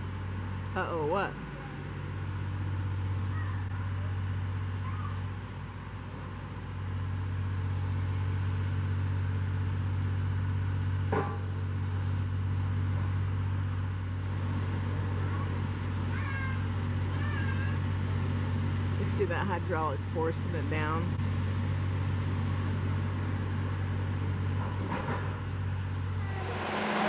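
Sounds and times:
hydraulic auger rig droning: 0:26.1 - 0:27.0.

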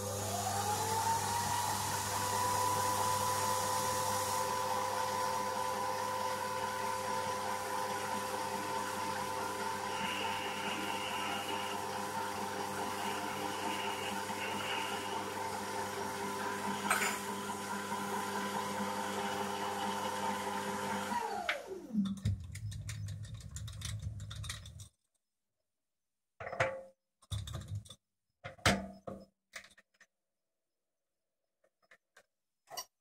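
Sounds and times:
lathe motor whine: 0:00.0 - 0:22.0.

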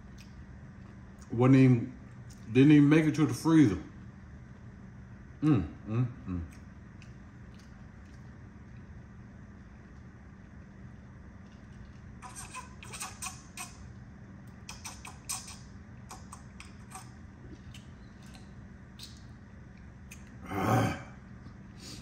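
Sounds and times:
steady low hum: 0:00.0 - 0:22.0
swallowing clicks: 0:14.5 - 0:20.4.

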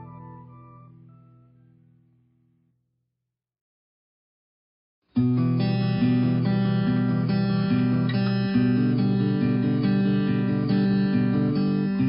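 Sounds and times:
instrumental guitar music: 0:00.0 - 0:02.0, 0:05.1 - 0:12.0.

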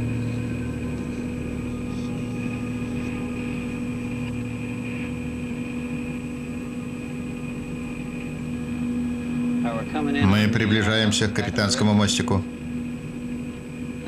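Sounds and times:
low droning machinery hum: 0:00.0 - 0:14.0.

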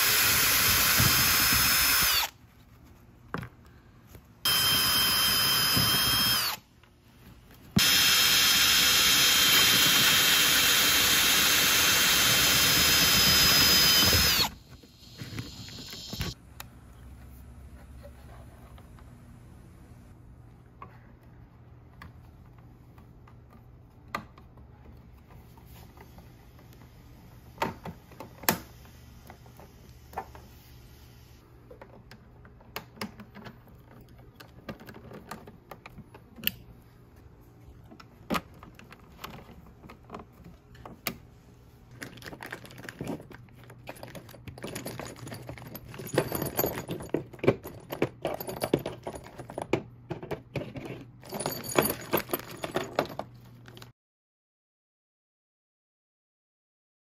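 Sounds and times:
bolts jingling in plastic bag: 0:51.2 - 0:53.8.

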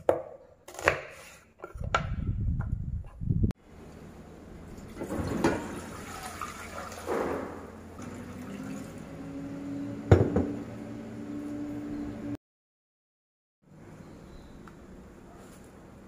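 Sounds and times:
water pouring into a pot: 0:05.0 - 0:07.1, 0:08.0 - 0:09.1.

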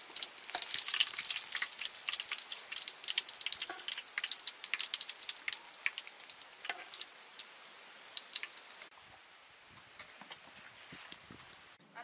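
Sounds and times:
tofu frying in hot oil: 0:00.0 - 0:09.0.

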